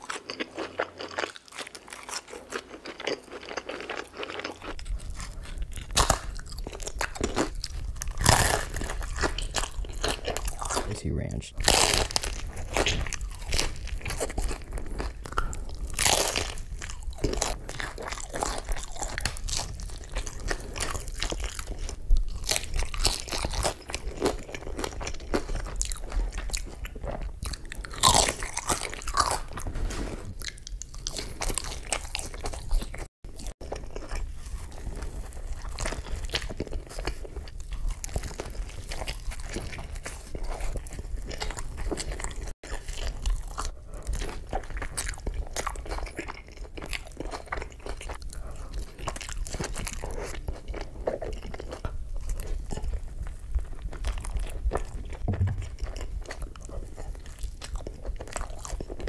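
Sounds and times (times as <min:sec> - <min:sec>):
crunching bites into taco shell: 0:00.0 - 0:10.9
wet chewing: 0:00.0 - 0:59.0.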